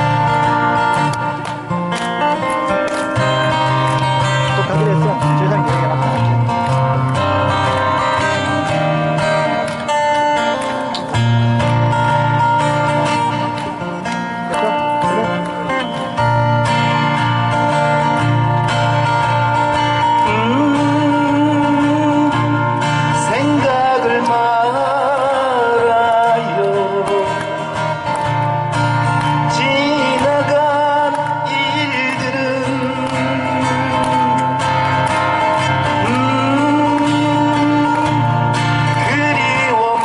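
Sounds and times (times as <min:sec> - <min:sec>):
amplified acoustic guitar: 0:00.0 - 0:40.0
pulsing bass line: 0:03.3 - 0:09.5.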